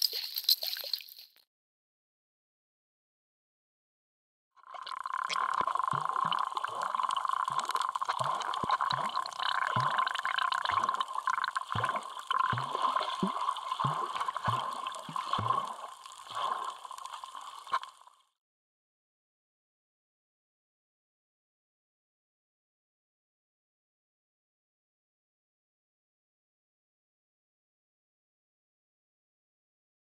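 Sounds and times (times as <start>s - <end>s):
underwater bubbling and gurgling: 4.6s - 18.2s
bubbling pops: 4.8s - 17.9s.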